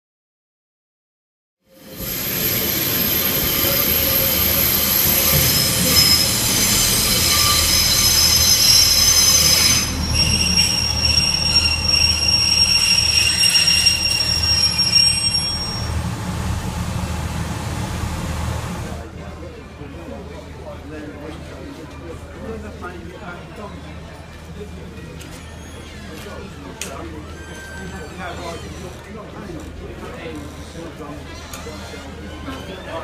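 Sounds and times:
train wheels squealing: 0:01.8 - 0:16.0, 0:25.3 - 0:26.5, 0:27.1 - 0:28.9
train rumbling: 0:01.8 - 0:19.1.

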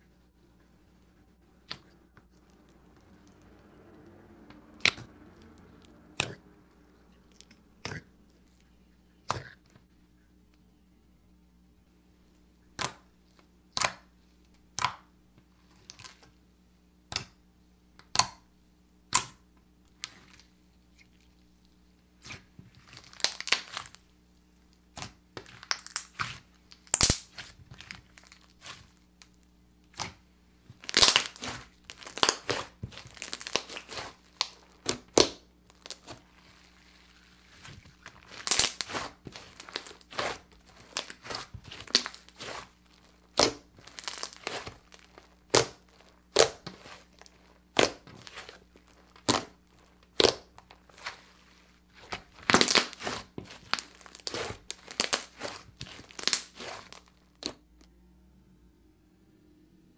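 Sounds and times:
slime crackling and popping: 0:04.8 - 0:06.4, 0:15.6 - 0:16.3, 0:22.2 - 0:57.8.

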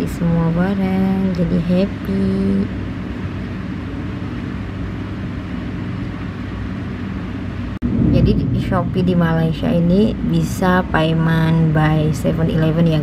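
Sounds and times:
low rumbling background noise: 0:00.0 - 0:13.0.

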